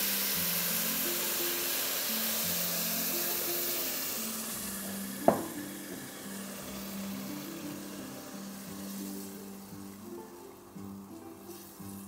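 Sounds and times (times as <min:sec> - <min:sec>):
food sizzling in a pot: 0:00.0 - 0:12.0
soft background music: 0:00.0 - 0:12.0
sharp knock: 0:05.2 - 0:05.6
spatula stirring: 0:08.3 - 0:12.0.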